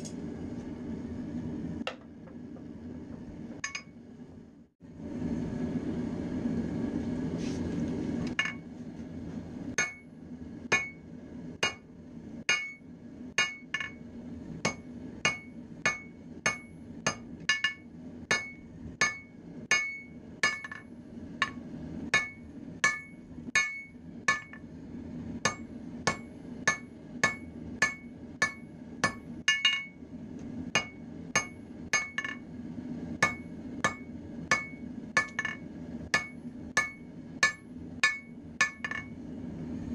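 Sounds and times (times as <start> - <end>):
hammer striking metal on anvil: 3.6 - 4.0, 8.4 - 8.6, 9.8 - 10.1, 10.7 - 11.0, 11.6 - 11.9, 12.5 - 12.8, 13.4 - 14.0, 14.6 - 24.6, 25.4 - 30.0, 30.7 - 32.4, 33.2 - 39.2.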